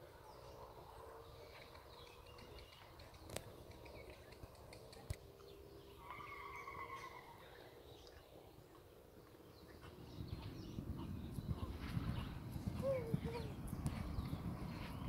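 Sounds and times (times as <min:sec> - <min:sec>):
faint bird calls: 0:06.0 - 0:08.2, 0:09.6 - 0:14.9.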